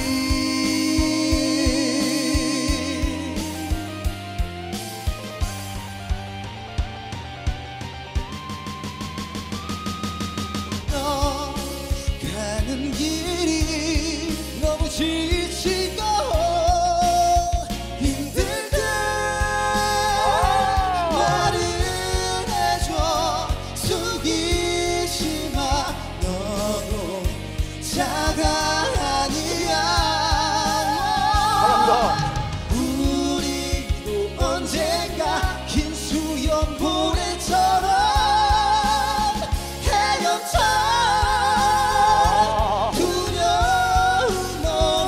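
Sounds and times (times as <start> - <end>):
men singing pop ballad: 0.0 - 5.0, 10.8 - 45.0
band accompaniment: 0.0 - 45.0.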